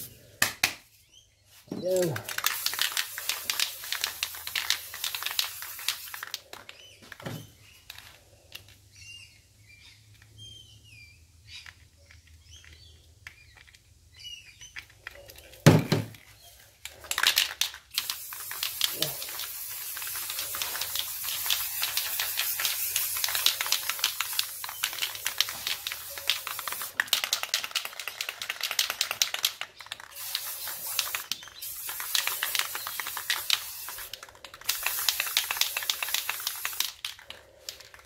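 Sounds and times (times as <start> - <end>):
aerosol spray can hissing: 2.0 - 6.5, 17.9 - 37.8.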